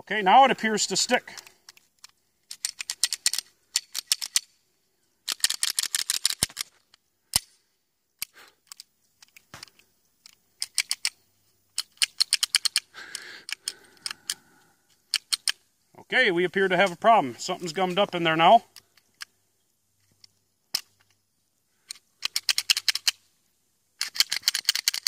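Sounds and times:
pistol action metallic clicks: 0:01.3 - 0:04.5, 0:05.2 - 0:06.7, 0:07.3 - 0:07.6, 0:08.2 - 0:14.4, 0:15.0 - 0:15.6, 0:21.9 - 0:23.2, 0:24.0 - 0:25.0.

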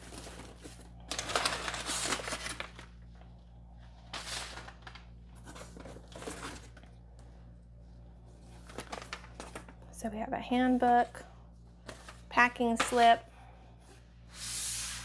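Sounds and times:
packing paper crinkling: 0:00.0 - 0:03.3, 0:04.0 - 0:07.0, 0:08.4 - 0:09.9.

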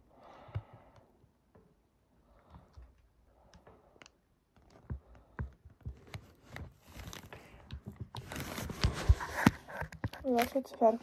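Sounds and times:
fingers handling camera: 0:03.5 - 0:10.7.

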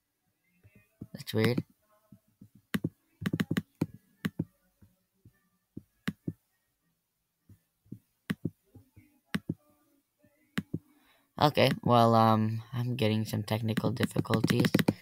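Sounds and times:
computer mouse clicking: 0:02.7 - 0:04.5, 0:06.1 - 0:06.4, 0:13.7 - 0:15.0.

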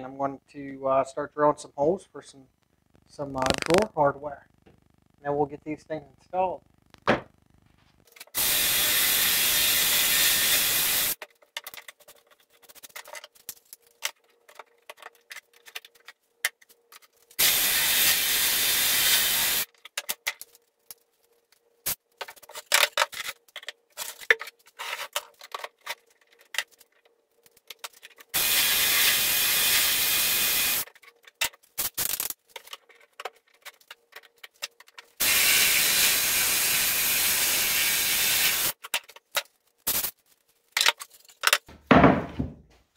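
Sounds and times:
cordless drill boring into wood: 0:08.4 - 0:11.2, 0:17.4 - 0:19.7, 0:28.4 - 0:30.8, 0:35.2 - 0:38.7.

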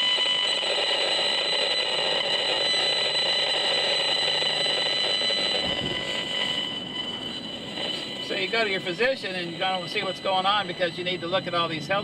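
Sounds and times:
steady electronic tone: 0:00.0 - 0:12.0.

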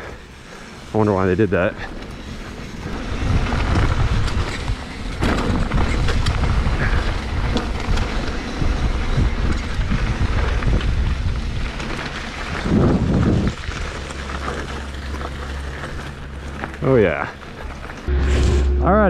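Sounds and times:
bike rattling: 0:00.0 - 0:18.1
low rumble of wind: 0:00.0 - 0:19.0
tyres crunching on gravel: 0:09.3 - 0:18.1.

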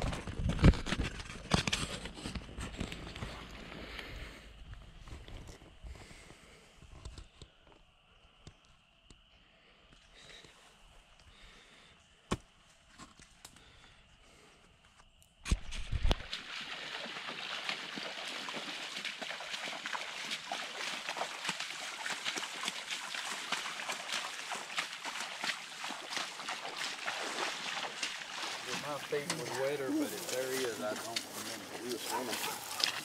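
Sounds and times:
footsteps splashing in floodwater: 0:15.7 - 0:33.0.

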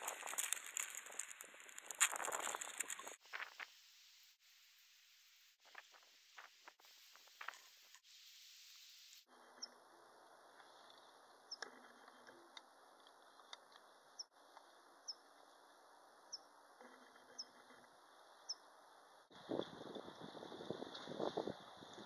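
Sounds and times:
faint clicks: 0:00.0 - 0:03.7
faint steady hiss: 0:00.0 - 0:22.0.

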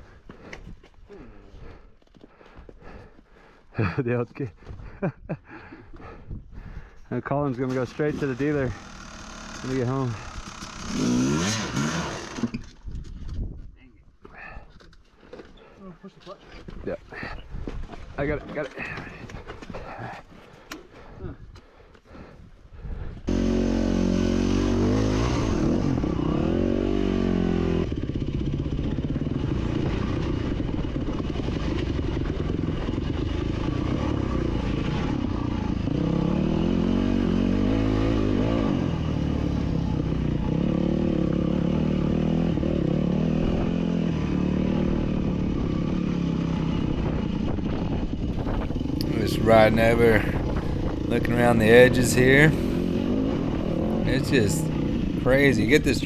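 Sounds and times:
dirt bike engine revving: 0:07.6 - 0:12.8, 0:23.2 - 0:56.0.

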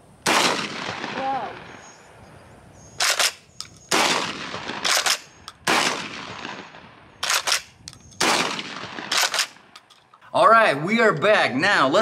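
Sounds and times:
shotgun shots with echo: 0:00.2 - 0:01.4, 0:03.0 - 0:09.6
shotgun pump double clack: 0:03.0 - 0:04.0, 0:04.8 - 0:06.0, 0:07.2 - 0:10.1.

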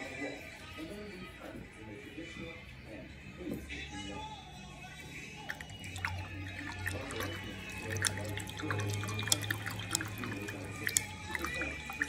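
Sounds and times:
water dripping: 0:05.4 - 0:12.0.

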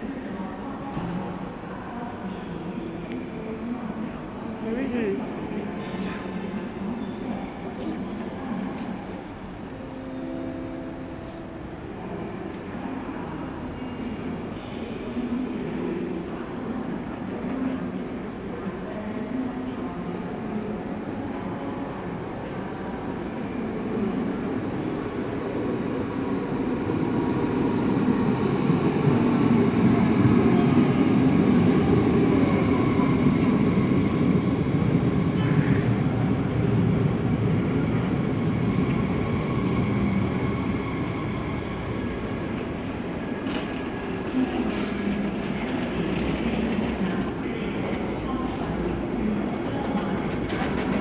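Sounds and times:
train rumbling: 0:24.4 - 0:51.0.

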